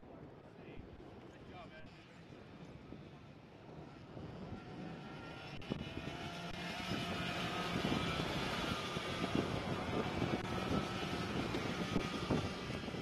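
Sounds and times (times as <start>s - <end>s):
engines droning: 0.0s - 13.0s.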